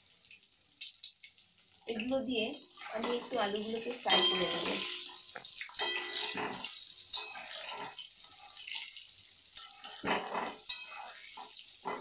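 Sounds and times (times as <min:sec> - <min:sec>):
potatoes sizzling in oil: 0:00.0 - 0:12.0
metal utensil scraping pan: 0:02.5 - 0:12.0.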